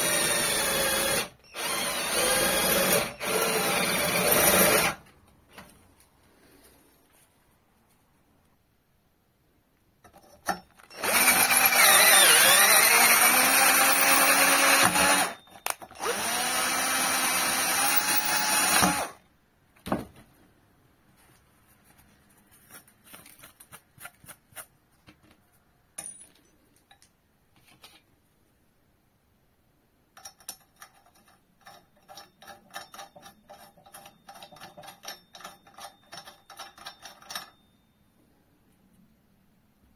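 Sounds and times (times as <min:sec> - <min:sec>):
cordless drill tapping steel: 0:10.9 - 0:19.2
handling sounds: 0:13.3 - 0:16.0, 0:17.8 - 0:19.1.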